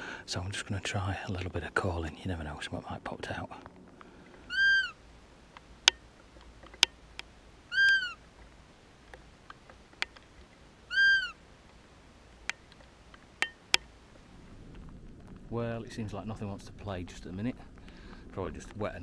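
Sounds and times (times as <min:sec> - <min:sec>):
deer call squeaks: 0:04.4 - 0:05.0, 0:07.7 - 0:08.2, 0:10.9 - 0:11.4.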